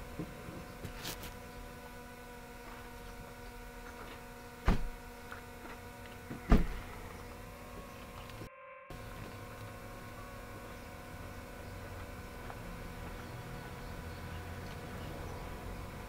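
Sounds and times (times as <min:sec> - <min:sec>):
steady hum of held tones: 0:00.0 - 0:16.0.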